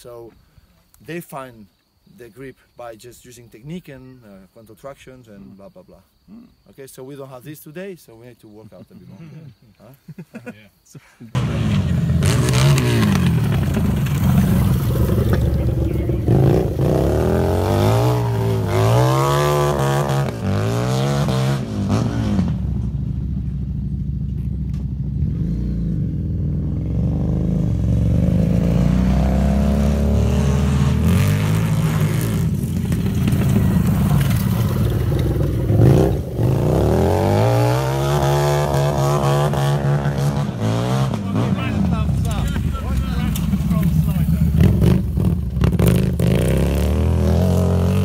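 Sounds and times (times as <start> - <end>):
motorcycles revving: 11.4 - 48.0.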